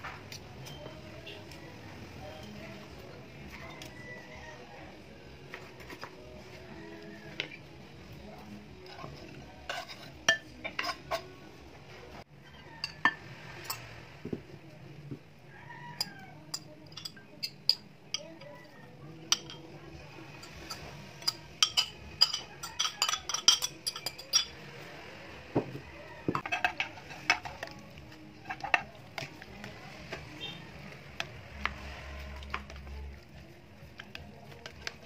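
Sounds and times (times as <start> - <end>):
metal cutlery clinking on glass bowls: 8.4 - 11.4, 12.4 - 13.9, 15.9 - 19.7, 20.3 - 24.8, 26.3 - 29.7, 31.2 - 35.0.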